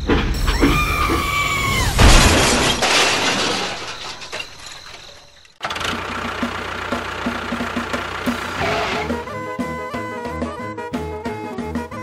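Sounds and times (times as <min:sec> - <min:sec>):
loud sudden crash: 0:01.8 - 0:04.2.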